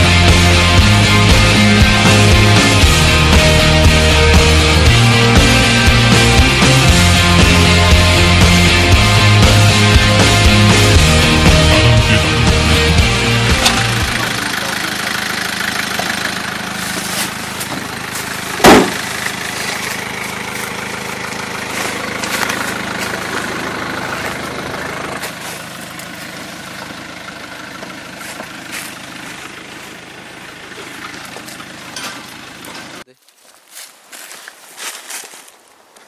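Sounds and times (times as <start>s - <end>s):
truck engine idling: 0.0s - 33.1s
door slam: 18.6s - 19.0s.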